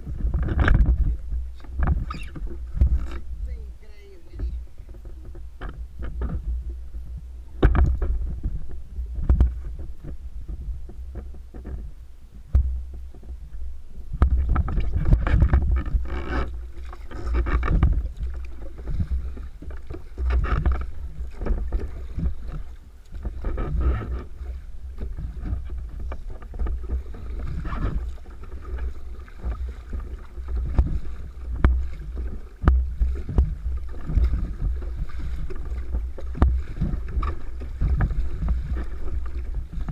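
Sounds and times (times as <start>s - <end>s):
wind buffeting microphone: 0.0s - 11.2s, 12.5s - 39.9s
water slapping against kayak hull: 0.0s - 39.9s
knocks on hull: 7.6s - 8.6s, 25.0s - 39.9s.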